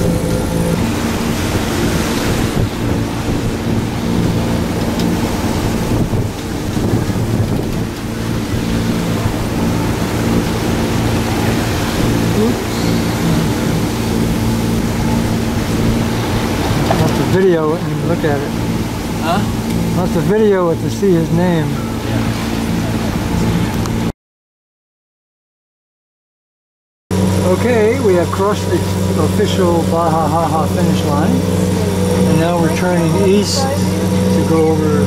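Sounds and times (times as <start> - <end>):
ocean waves rushing: 0.0 - 24.1, 27.1 - 35.0
steady low drone: 0.0 - 24.1, 27.1 - 35.0
wind buffeting microphone: 0.0 - 24.1.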